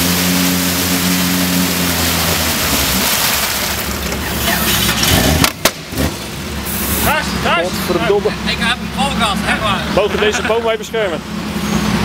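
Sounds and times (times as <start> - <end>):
wheels spinning in mud: 0.0 - 5.6
loud water splashing: 0.0 - 7.0
car engine revving: 0.0 - 12.0.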